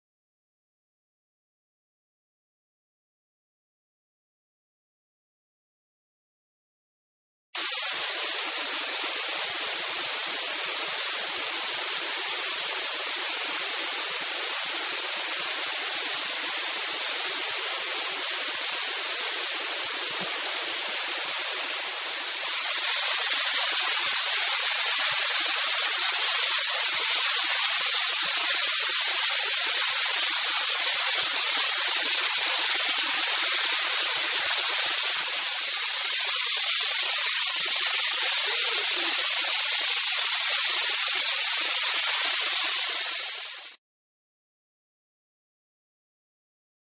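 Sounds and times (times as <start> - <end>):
waterfall splashing onto rocks: 7.6 - 43.8.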